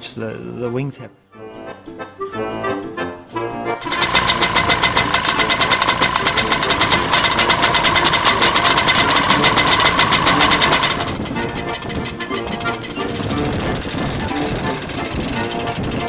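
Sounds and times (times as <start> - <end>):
small engines buzzing: 3.8 - 16.0.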